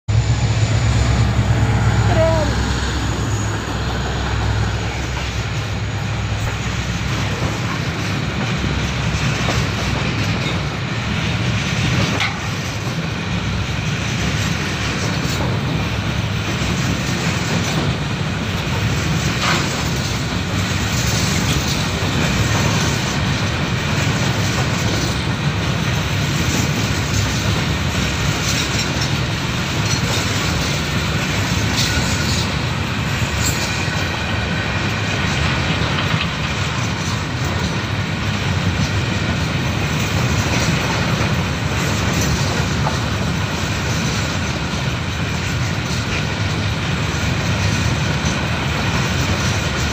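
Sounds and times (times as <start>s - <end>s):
train wheels rumbling on rails: 0.0s - 49.9s.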